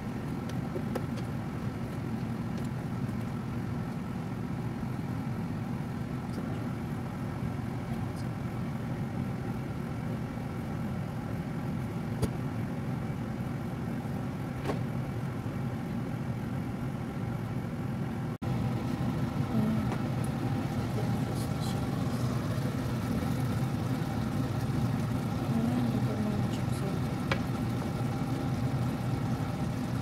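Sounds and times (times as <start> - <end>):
kitchen appliance humming: 15.2 - 30.0.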